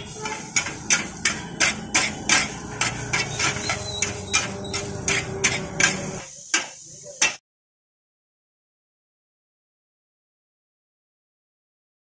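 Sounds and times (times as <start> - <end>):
metal spatula clacking on griddle: 0.1 - 7.4.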